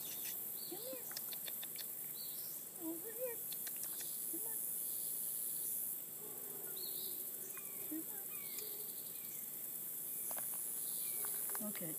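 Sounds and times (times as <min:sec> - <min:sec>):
bird chirps: 0:00.0 - 0:02.6, 0:06.8 - 0:09.5
insect trilling: 0:00.0 - 0:11.9.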